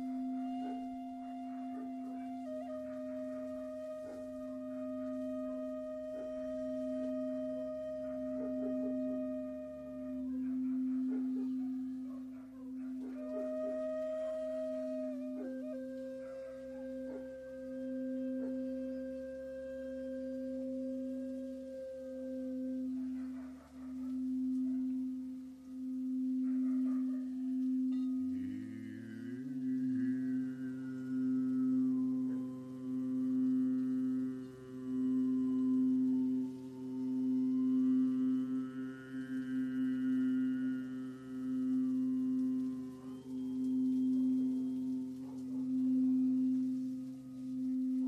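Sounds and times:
wooden flute note: 0:00.0 - 0:12.2, 0:12.8 - 0:25.4, 0:27.8 - 0:48.0
singing bowl low tone: 0:00.0 - 0:48.0.

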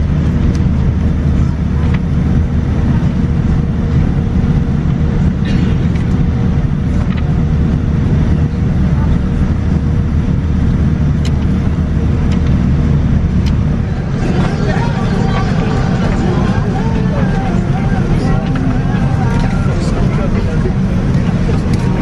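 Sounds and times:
airplane cabin rumble: 0:00.0 - 0:22.0
cabin ventilation hum: 0:00.0 - 0:22.0
passenger chatter: 0:00.0 - 0:22.0.

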